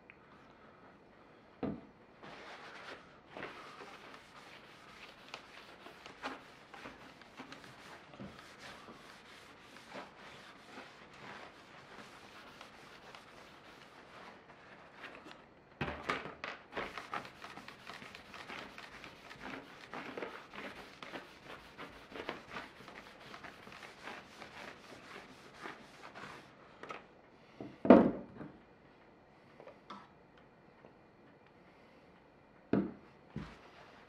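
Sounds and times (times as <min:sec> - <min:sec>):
paper towel rubbing on saw blade: 0:02.2 - 0:15.2, 0:16.8 - 0:26.6.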